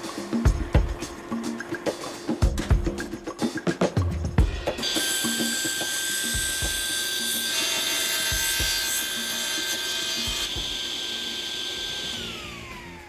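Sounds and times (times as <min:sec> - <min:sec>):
saw blade cutting wood: 0:04.7 - 0:13.0
table saw running with whine: 0:04.8 - 0:13.0.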